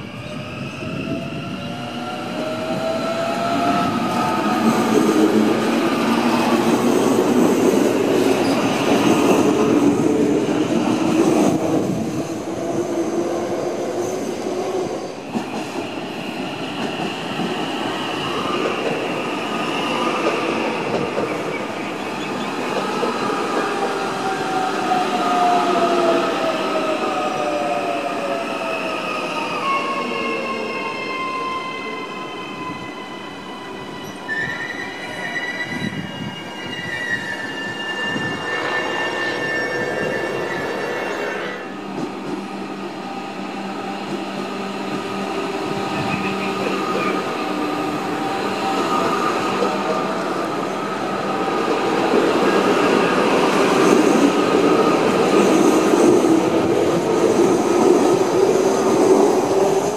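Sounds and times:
train wheels rolling on rails: 0:00.1 - 0:59.9.

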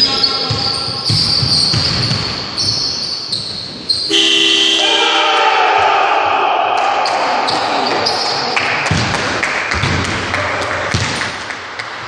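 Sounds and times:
sneakers squeaking: 0:00.0 - 0:04.8, 0:07.0 - 0:09.1, 0:10.9 - 0:11.2
basketball bouncing on wooden floor: 0:00.4 - 0:02.8, 0:08.8 - 0:10.2, 0:10.9 - 0:11.2
long horn blast: 0:04.1 - 0:05.4.

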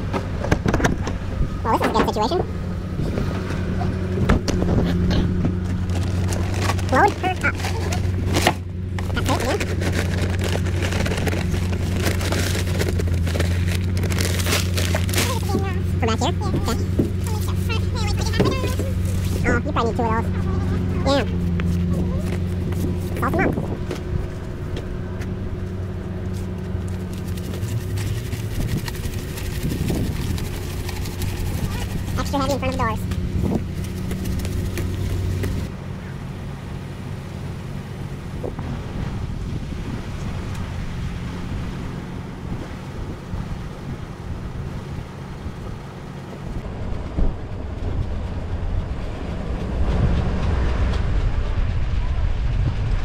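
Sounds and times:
wind buffeting microphone: 0:00.0 - 0:14.3, 0:15.1 - 0:35.8, 0:38.0 - 0:53.0
truck engine idling: 0:00.0 - 0:53.0
footsteps on icy pavement: 0:04.2 - 0:19.6, 0:20.2 - 0:35.7.

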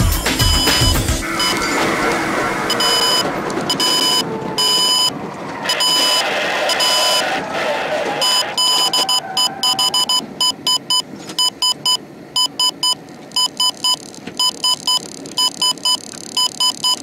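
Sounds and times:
short high-pitched electronic beeps: 0:00.2 - 0:01.8, 0:08.2 - 0:17.0
vehicle and road noise: 0:00.6 - 0:16.5.

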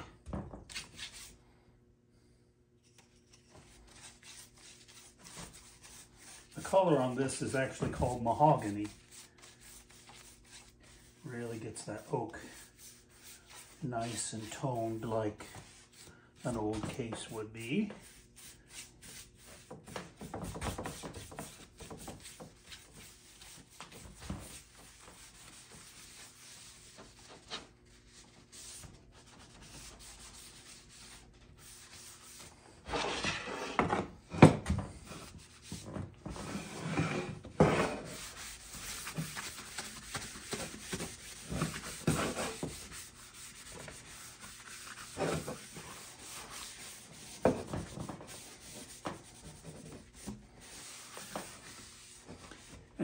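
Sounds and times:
rag wiping wood: 0:03.6 - 0:33.8, 0:35.0 - 0:52.8
brush stroking stain onto wood: 0:03.9 - 0:19.7, 0:38.1 - 0:52.4.

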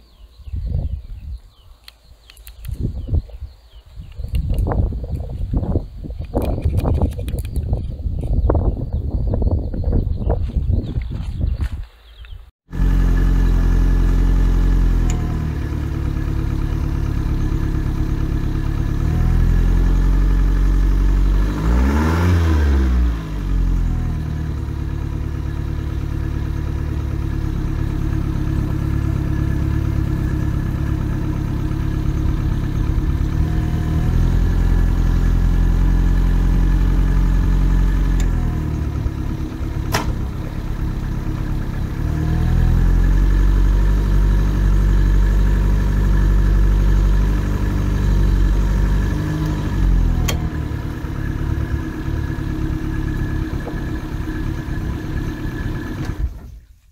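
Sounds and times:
outboard motor running: 0:24.4 - 0:56.6
gear shift click: 0:38.2 - 0:38.4, 0:50.2 - 0:50.5.

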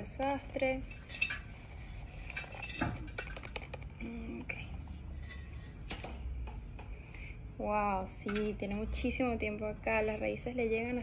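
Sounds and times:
plastic pot clicks and knocks: 0:02.7 - 0:04.0.

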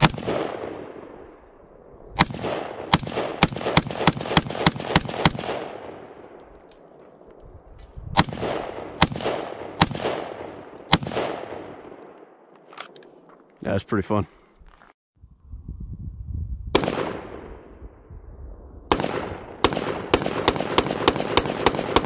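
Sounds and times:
gunshots with echo: 0:00.0 - 0:01.4, 0:02.2 - 0:06.4, 0:08.2 - 0:12.3, 0:16.8 - 0:17.7, 0:18.9 - 0:22.0.

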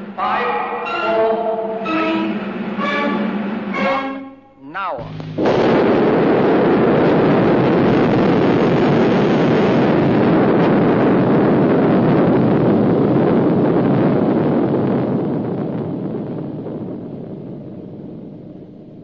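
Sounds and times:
explosion rushing rumble: 0:05.0 - 0:19.0.

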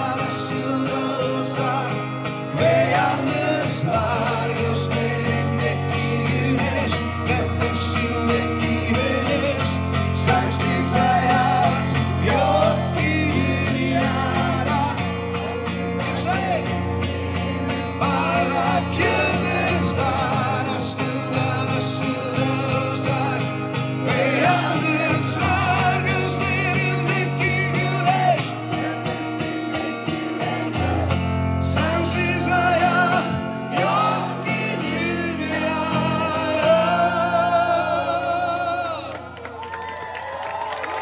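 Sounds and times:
person singing: 0:00.0 - 0:31.2
bass guitar: 0:00.0 - 0:39.5
acoustic guitar: 0:00.0 - 0:41.0.

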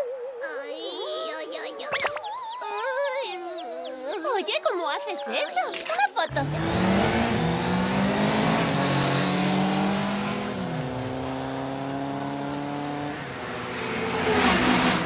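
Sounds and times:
racing motorcycle engines revving: 0:06.3 - 0:15.0.

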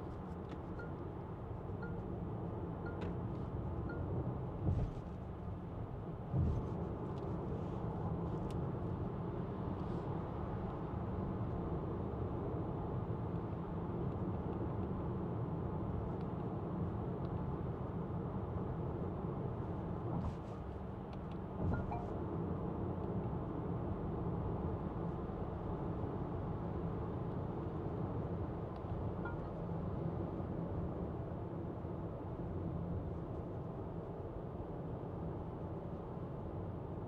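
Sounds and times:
road and tyre rumble in car: 0:00.0 - 0:37.0.

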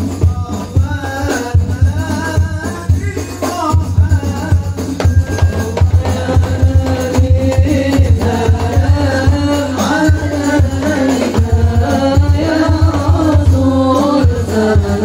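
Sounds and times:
frame drums beating: 0:00.0 - 0:15.0
group of young voices singing: 0:04.8 - 0:15.0.

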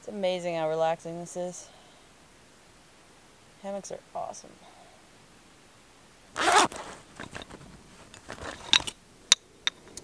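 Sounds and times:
zipper pulled open: 0:06.4 - 0:08.8
gear clicking and clinking: 0:06.4 - 0:09.0.

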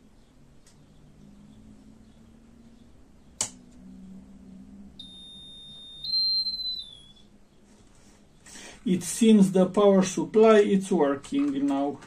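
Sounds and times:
high-pitched electronic tone: 0:04.0 - 0:07.3.

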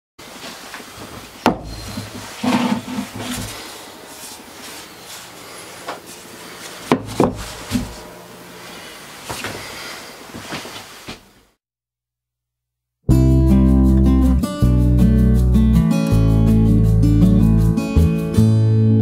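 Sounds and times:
wood rubbing against bench: 0:01.2 - 0:06.2, 0:06.9 - 0:08.1
wooden block knocking on bench: 0:06.9 - 0:08.0.

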